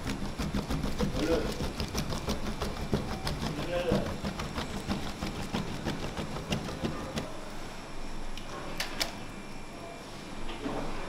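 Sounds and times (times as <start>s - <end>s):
scraper scraping metal tray: 0.0s - 7.3s.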